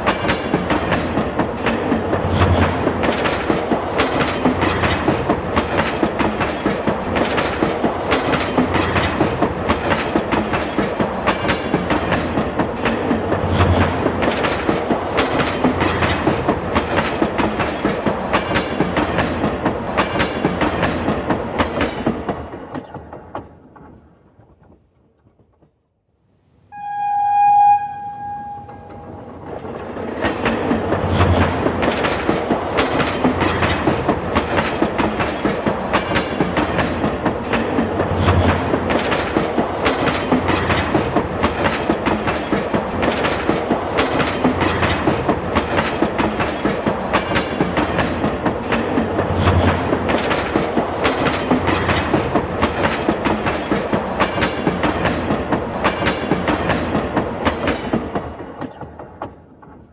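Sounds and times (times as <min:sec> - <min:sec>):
train wheels clattering: 0:00.0 - 0:25.8, 0:28.7 - 0:59.9
train horn: 0:26.7 - 0:29.3.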